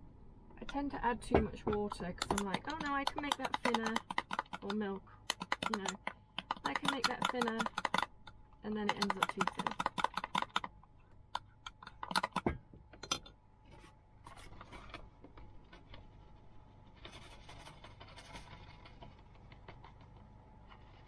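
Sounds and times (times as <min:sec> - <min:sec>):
utensil stirring batter in bowl: 0:01.8 - 0:10.7.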